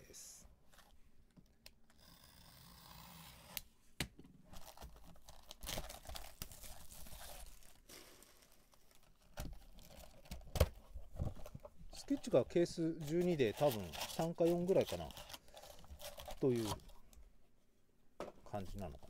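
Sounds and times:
plastic wrapping tearing and crinkling: 4.5s - 10.7s, 13.0s - 16.9s.

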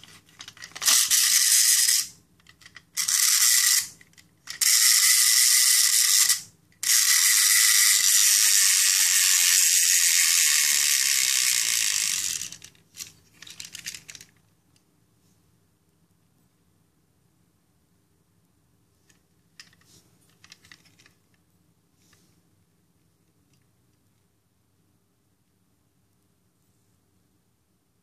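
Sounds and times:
wind-up toy gears whirring: 0.0s - 14.3s.

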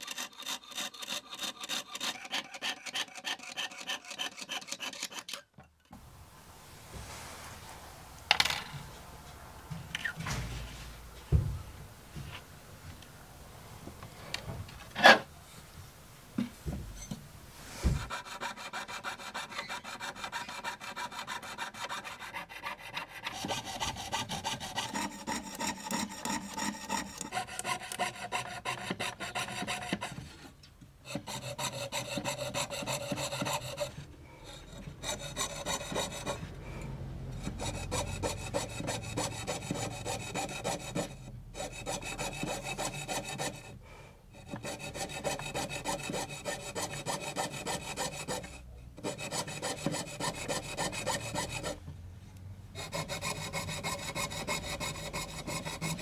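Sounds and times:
saw rasping through metal: 0.0s - 5.4s, 18.0s - 51.8s, 52.8s - 56.0s.

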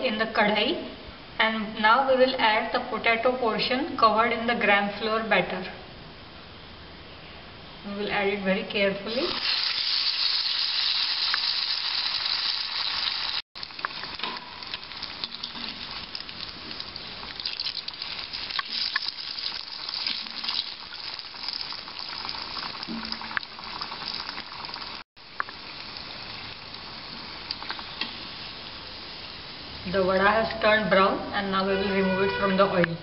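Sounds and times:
food sizzling in hot oil: 9.1s - 30.3s
oil pops and crackles: 13.6s - 28.2s.

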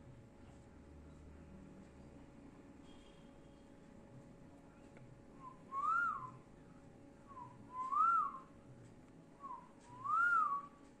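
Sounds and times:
person whistling: 5.4s - 6.4s, 7.3s - 8.5s, 9.4s - 10.8s.

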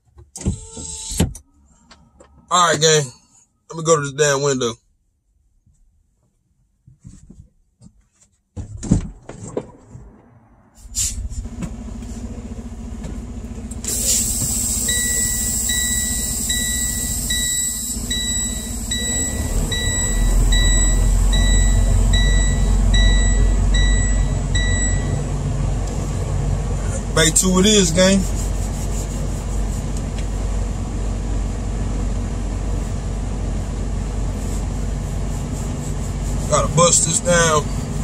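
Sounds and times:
diesel truck engine running: 9.7s - 38.0s
warning chime beeping: 14.9s - 25.3s.

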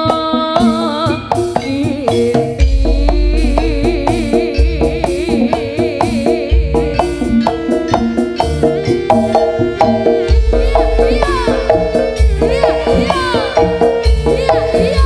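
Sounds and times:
steady melodic notes: 2.4s - 15.0s
wavering high melody: 2.6s - 15.0s
deep bass note: 10.3s - 13.2s.

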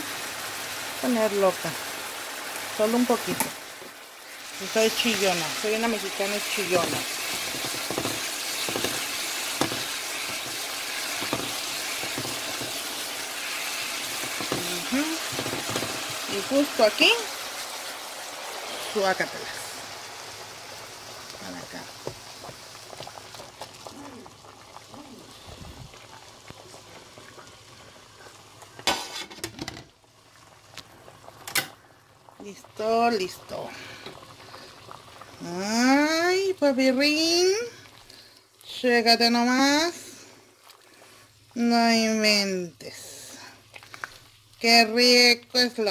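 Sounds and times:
pot of broth boiling: 0.0s - 45.9s
vegetables sizzling in a pan: 0.0s - 45.9s
hot vegetables hitting broth: 4.9s - 18.4s
spatula knocking in a pan: 6.8s - 10.6s, 11.2s - 12.9s.

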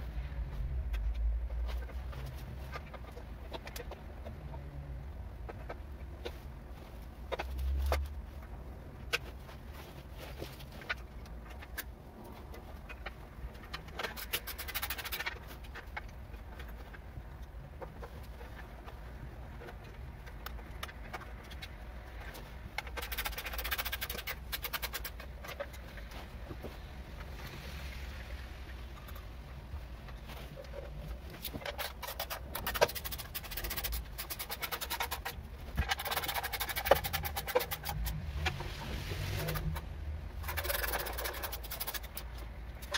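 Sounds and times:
metal parts and tools clicking: 31.4s - 38.6s, 39.3s - 42.9s
rapid ratchet clicking: 31.8s - 38.2s, 40.4s - 42.3s.

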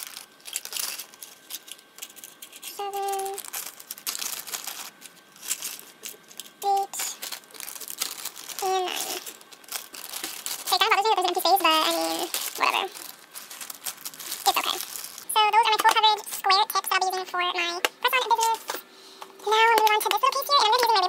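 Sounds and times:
crinkling and rustling: 0.0s - 18.8s.

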